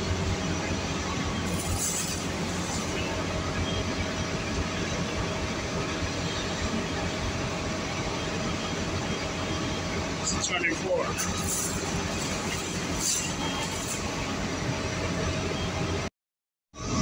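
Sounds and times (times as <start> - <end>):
bus engine rumble and road noise: 0.0 - 16.1
brief hiss: 1.5 - 3.1.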